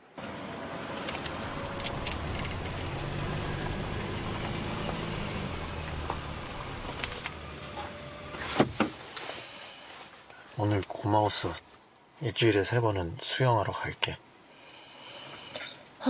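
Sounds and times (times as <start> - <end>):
car engine hum: 0.0 - 9.8.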